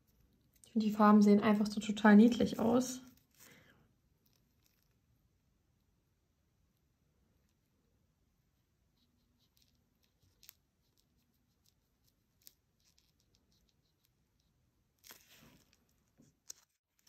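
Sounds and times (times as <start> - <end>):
nail brush handling noises: 9.2 - 17.0.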